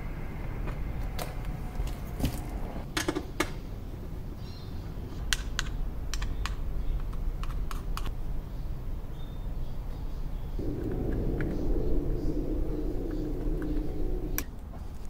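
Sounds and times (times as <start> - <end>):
low steady rumble: 10.6 - 14.8.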